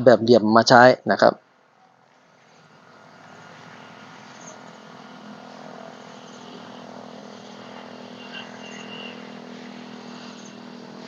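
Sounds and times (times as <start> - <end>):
vehicle engine humming: 1.4 - 11.0
faint high chirping: 5.6 - 10.7.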